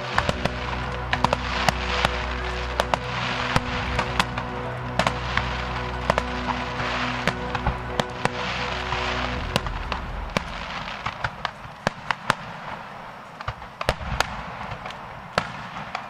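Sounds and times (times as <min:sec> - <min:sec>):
fireworks cracks and bangs: 0:09.1 - 0:16.0.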